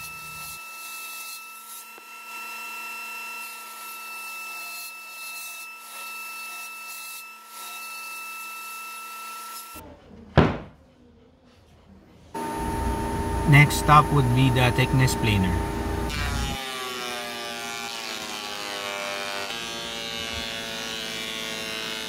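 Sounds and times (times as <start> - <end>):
loud knock: 10.4 - 10.8.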